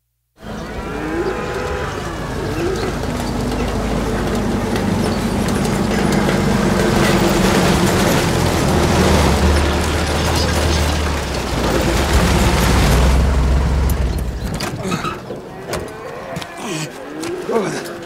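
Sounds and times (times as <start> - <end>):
cattle mooing: 0.4 - 4.9, 14.8 - 18.0
low engine rumble: 0.4 - 15.5.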